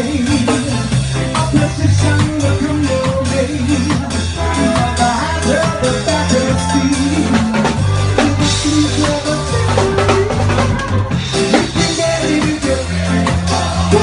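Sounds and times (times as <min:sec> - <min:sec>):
drum kit: 0:00.0 - 0:14.0
live reggae band playing: 0:00.0 - 0:14.0
moving bass line: 0:00.0 - 0:14.0.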